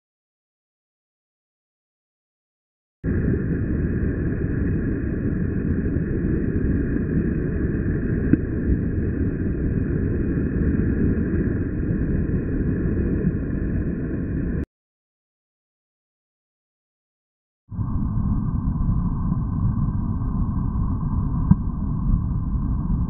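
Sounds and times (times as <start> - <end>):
wind rumble on microphone: 3.0 - 14.6, 17.7 - 23.0.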